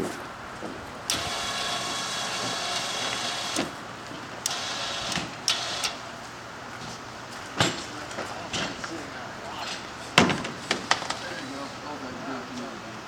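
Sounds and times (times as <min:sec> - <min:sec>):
sharp knocks and clanks: 0:00.6 - 0:06.0, 0:06.8 - 0:09.0, 0:09.6 - 0:11.4
winch motor humming: 0:00.8 - 0:13.0.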